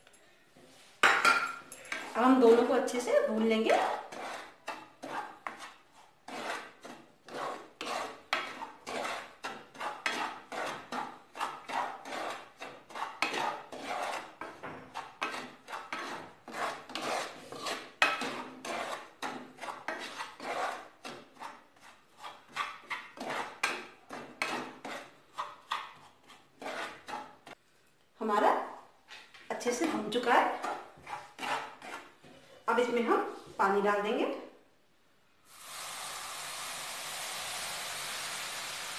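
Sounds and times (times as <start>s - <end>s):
spatula scraping flour in pan: 3.3s - 27.6s, 29.8s - 33.7s.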